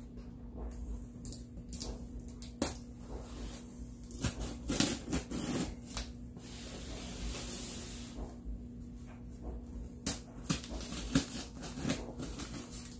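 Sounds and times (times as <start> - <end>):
blade scraping cardboard: 3.4 - 8.2, 10.4 - 12.9
knife slitting packing tape: 4.0 - 6.1, 10.0 - 12.9.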